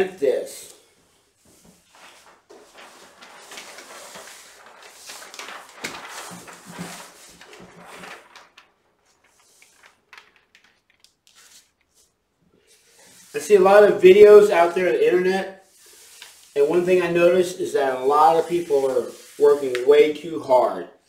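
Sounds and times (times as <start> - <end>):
faint ticks of paper smoothed: 0.7 - 13.4, 15.6 - 17.1, 17.9 - 20.2
paper sheet rustling: 0.9 - 20.7.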